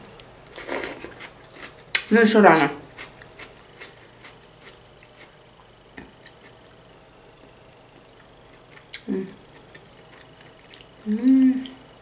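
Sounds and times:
person chewing: 0:00.4 - 0:06.6, 0:07.4 - 0:11.0
low vocal sound: 0:11.0 - 0:11.8.

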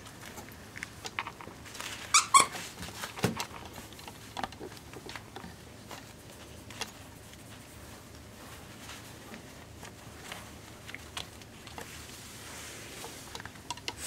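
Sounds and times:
puppies tapping and scuffling: 0:00.0 - 0:14.0
squeaky toy squeaks: 0:02.1 - 0:02.6.

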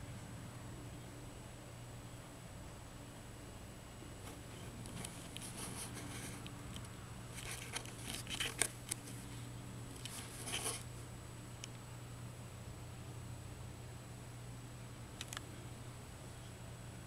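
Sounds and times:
soft close rustling: 0:04.2 - 0:10.9
light clicks: 0:15.2 - 0:15.5.

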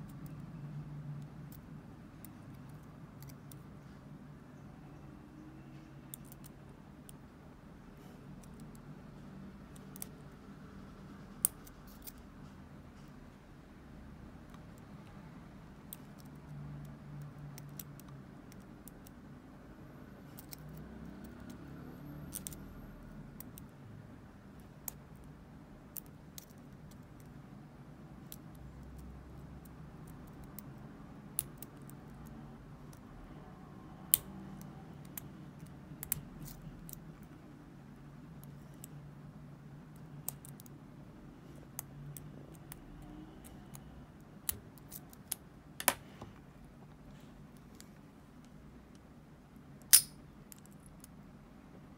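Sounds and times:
lock pick clicking in padlock: 0:49.8 - 0:50.2.

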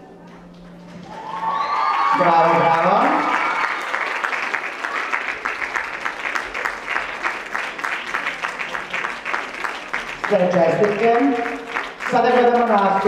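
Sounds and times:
audience applauding: 0:00.3 - 0:13.0.

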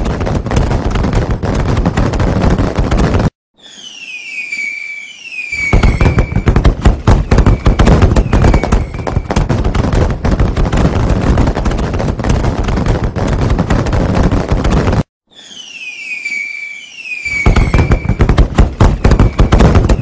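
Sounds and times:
firecrackers crackling bangs: 0:00.0 - 0:20.0
firework whistles falling in pitch: 0:03.5 - 0:06.6, 0:07.2 - 0:09.4, 0:15.2 - 0:20.0.

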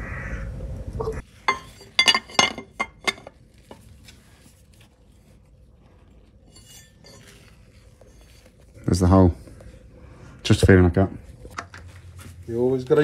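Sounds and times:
steel plate clinking on metal: 0:01.4 - 0:03.4, 0:06.5 - 0:07.4.

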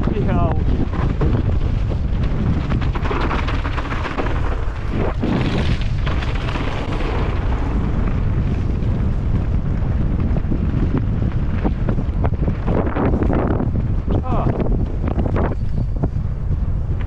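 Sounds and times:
clattering knocks and rattles: 0:00.0 - 0:07.5
low rumble: 0:00.0 - 0:17.0
wind buffeting microphone: 0:00.0 - 0:17.0.

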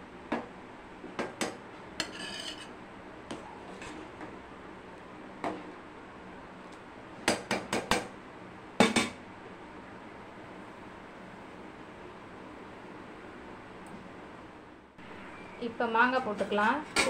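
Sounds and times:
ladle scraping a metal pot: 0:02.0 - 0:02.7.

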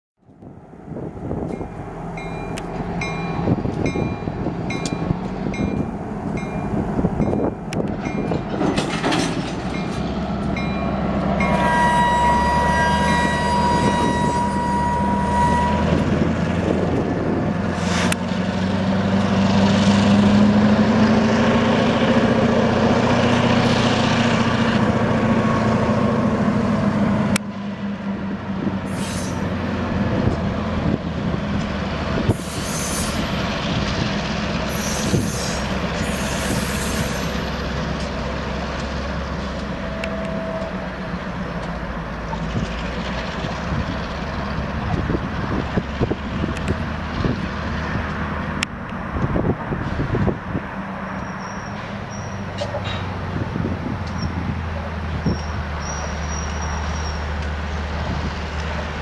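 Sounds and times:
diesel locomotive engine drone: 0:00.2 - 0:59.0
freight cars clattering: 0:07.2 - 0:10.6
metal clanks: 0:07.9 - 0:10.1
high wheel squeal: 0:11.4 - 0:16.4, 0:28.9 - 0:29.6, 0:32.3 - 0:33.4, 0:34.7 - 0:37.6, 0:51.1 - 0:53.1, 0:55.2 - 0:57.3.

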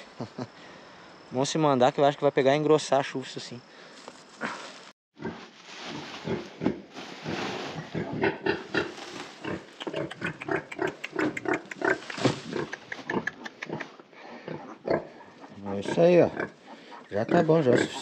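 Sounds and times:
grass and sack rustling: 0:03.8 - 0:09.8, 0:11.9 - 0:12.8
pig grunting: 0:05.2 - 0:18.0.

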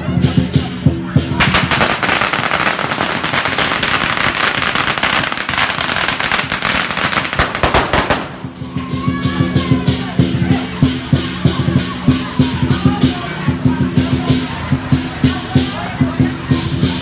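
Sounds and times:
firecrackers popping: 0:01.2 - 0:09.0.

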